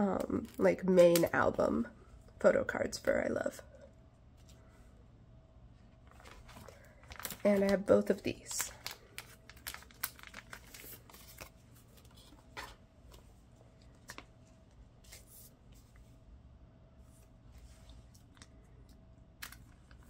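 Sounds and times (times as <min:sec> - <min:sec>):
cards rustling into plastic pockets: 0:06.1 - 0:16.0, 0:19.4 - 0:20.0.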